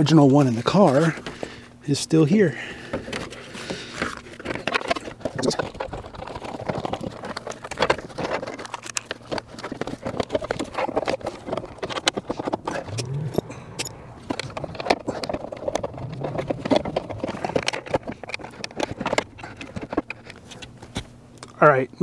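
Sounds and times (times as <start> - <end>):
seatbelt parts clicking: 11.8 - 21.6.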